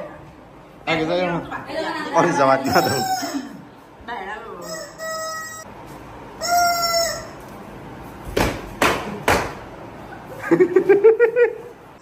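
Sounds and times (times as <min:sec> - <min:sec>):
toy whistle honk: 0:04.6 - 0:05.7, 0:06.4 - 0:07.4.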